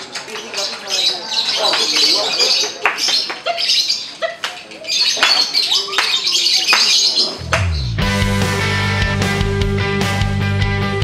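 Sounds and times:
music with low rising bass: 7.4 - 11.0.

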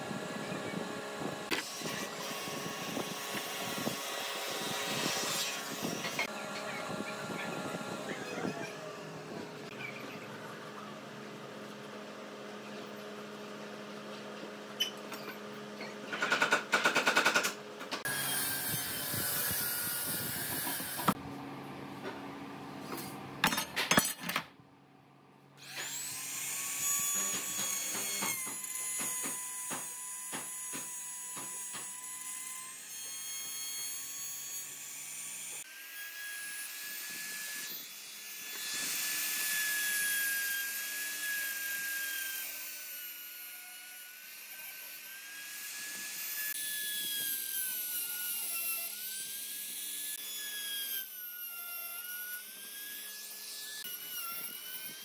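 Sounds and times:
router whining cutting wood: 0.0 - 11.2, 18.0 - 21.2, 25.6 - 55.0.

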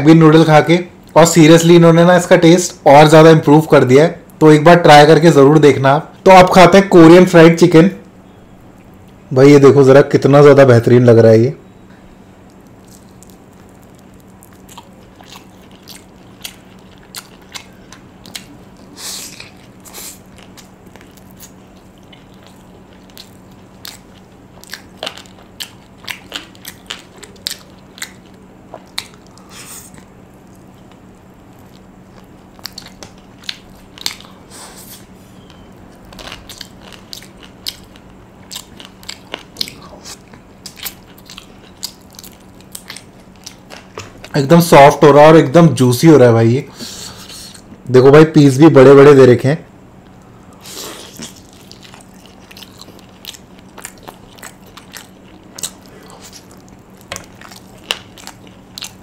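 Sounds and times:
crunchy chewing: 12.4 - 44.8, 49.9 - 59.0.

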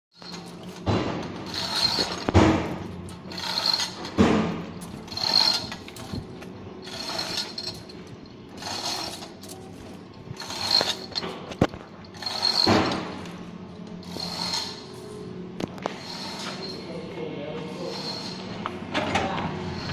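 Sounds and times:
chain rattling with ratcheting clicks: 0.2 - 0.8, 1.4 - 14.9.

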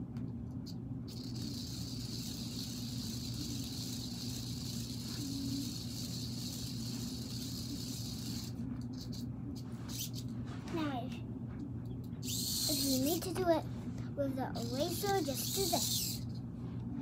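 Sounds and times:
low hum: 0.0 - 17.0
toy car hissing whir: 1.1 - 9.2, 12.2 - 13.3, 14.6 - 16.3.

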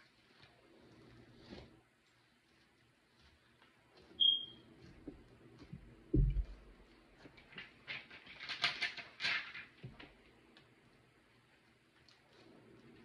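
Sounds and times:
low thud: 6.1 - 6.6.

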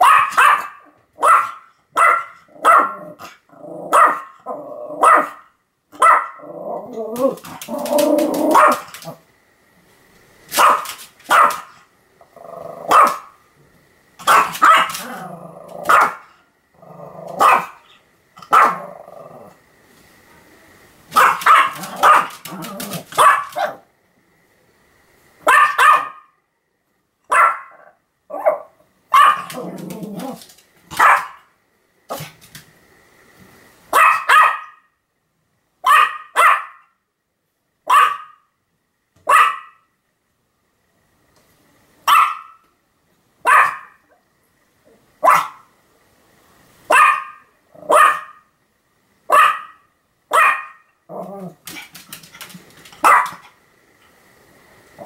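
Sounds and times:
dog barking: 0.0 - 4.4, 5.0 - 6.5, 8.5 - 9.0, 10.5 - 11.8, 12.9 - 13.3, 14.2 - 15.0, 15.8 - 16.3, 17.4 - 17.8, 18.4 - 18.9, 21.1 - 23.9, 25.4 - 26.4, 27.3 - 30.3, 30.9 - 31.5, 33.9 - 34.9, 35.8 - 37.0, 37.8 - 38.5, 39.2 - 39.9, 42.0 - 42.6, 43.4 - 44.2, 45.2 - 45.7, 46.9 - 48.5, 49.3 - 50.9, 53.0 - 53.4
dog growling: 2.5 - 5.1, 6.3 - 9.2, 12.2 - 13.1, 14.3 - 17.9, 18.5 - 19.6, 21.7 - 23.1, 29.4 - 30.6, 47.7 - 48.0, 51.1 - 52.6.

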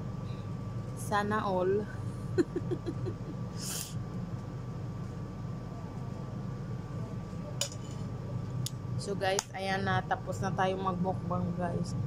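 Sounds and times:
low hum: 0.0 - 12.0
woman laughing: 2.1 - 3.7.

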